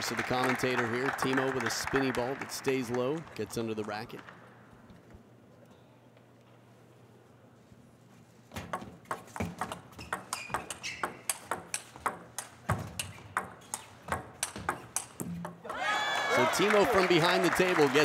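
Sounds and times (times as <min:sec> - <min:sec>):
table tennis ball hitting rackets: 0:08.6 - 0:15.8.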